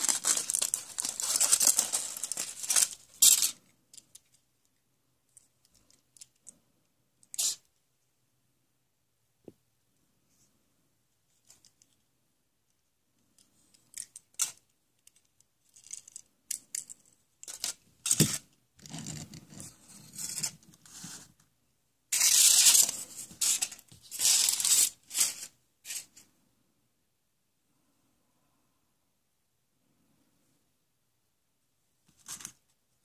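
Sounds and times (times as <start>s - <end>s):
foil wrappers crinkling: 0.0s - 3.5s.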